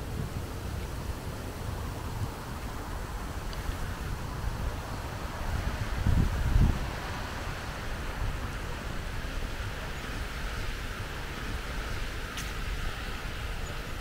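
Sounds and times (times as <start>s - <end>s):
wind with fluttering rumble: 0.0s - 14.0s
faint tick: 3.5s - 3.8s.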